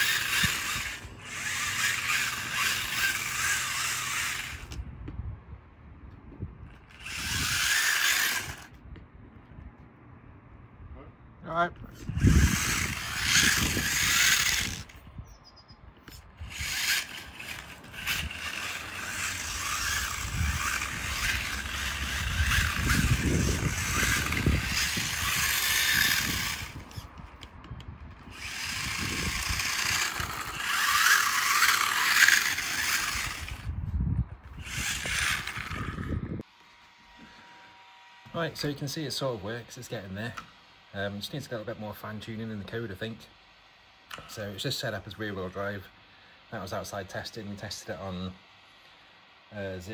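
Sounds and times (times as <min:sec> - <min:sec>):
rc car motor whirring: 0:00.0 - 0:04.9, 0:06.6 - 0:08.8, 0:11.8 - 0:15.1, 0:16.0 - 0:33.8, 0:34.4 - 0:43.2.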